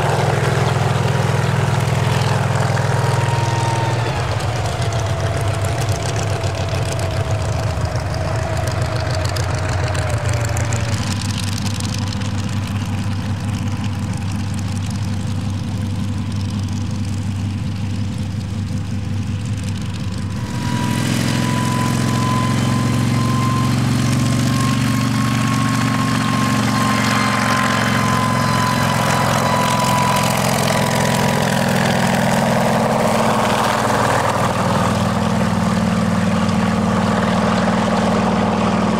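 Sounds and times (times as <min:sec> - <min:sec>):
helicopter engine drone: 0:00.0 - 0:38.9
helicopter whine: 0:00.0 - 0:38.9.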